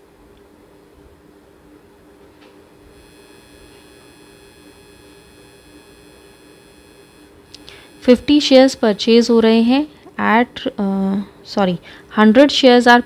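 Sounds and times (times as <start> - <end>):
electrical hum with hiss: 0.0 - 13.0
small clicks: 3.0 - 8.1
faint tick: 7.5 - 7.8.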